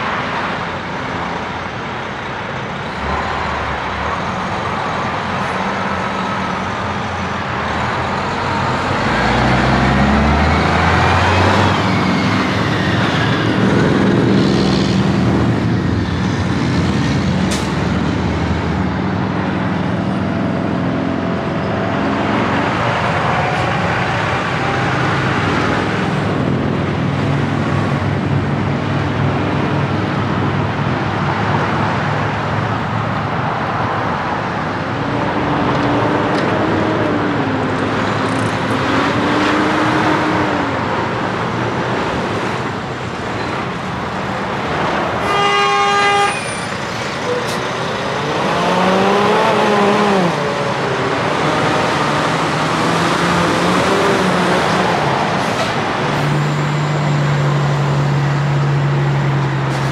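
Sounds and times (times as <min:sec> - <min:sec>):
diesel trucks driving past: 0:00.0 - 0:59.9
tyre and road noise: 0:00.0 - 0:59.9.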